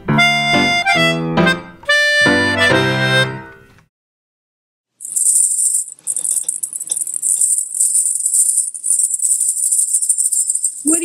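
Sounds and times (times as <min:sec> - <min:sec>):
small jingle bells jingling: 0:05.0 - 0:11.0.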